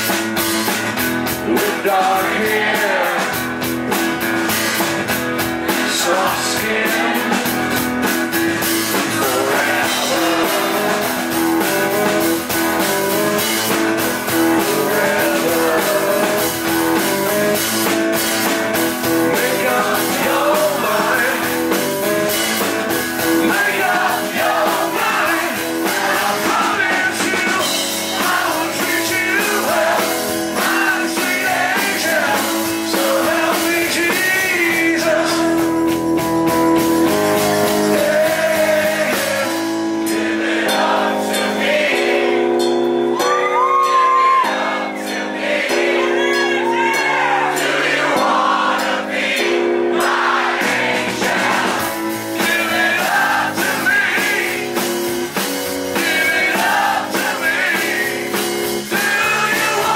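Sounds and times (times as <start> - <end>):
man singing: 1.2 - 3.6, 5.6 - 7.8, 8.7 - 12.2, 13.7 - 35.9, 37.0 - 40.3, 52.4 - 54.8, 55.9 - 59.9.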